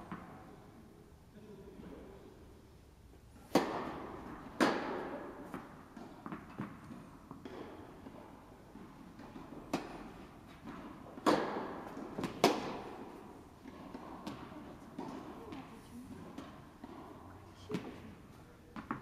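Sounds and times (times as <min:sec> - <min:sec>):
rackets striking tennis ball: 0:00.0 - 0:00.5, 0:03.4 - 0:19.0
tennis ball bouncing: 0:03.4 - 0:19.0.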